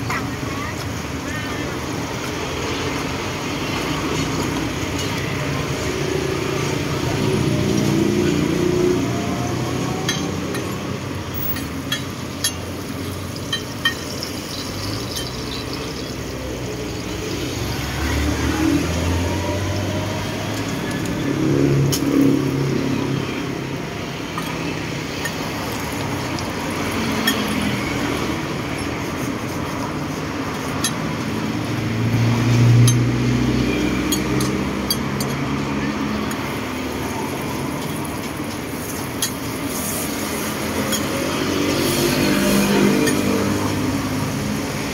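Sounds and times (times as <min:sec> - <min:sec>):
road traffic passing: 0:00.0 - 0:44.9
sharp clicks and clinks: 0:13.4 - 0:16.2.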